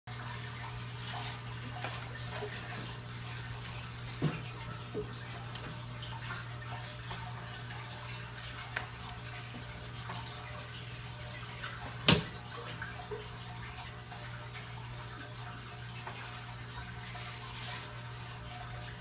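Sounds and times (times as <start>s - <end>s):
aquarium water circulating: 0.1s - 19.0s
low pump hum: 0.1s - 19.0s.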